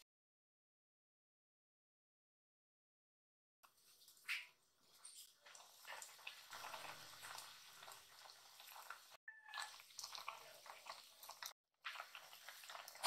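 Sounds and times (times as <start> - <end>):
broth simmering and bubbling: 3.6 - 13.0.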